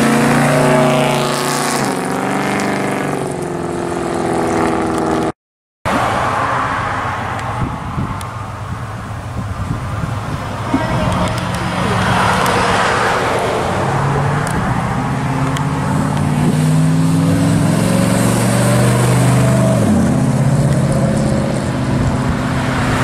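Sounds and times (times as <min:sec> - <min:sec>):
car engine accelerating away: 0:10.6 - 0:23.0.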